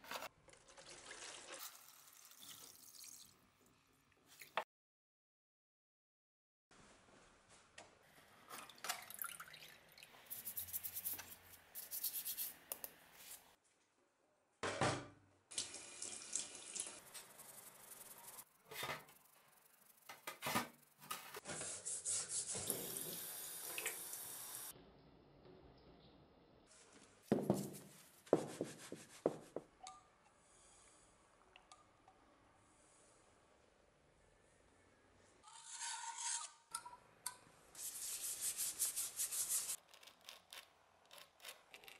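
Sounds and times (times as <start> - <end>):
water splashing in metal sink: 8.6 - 10.1.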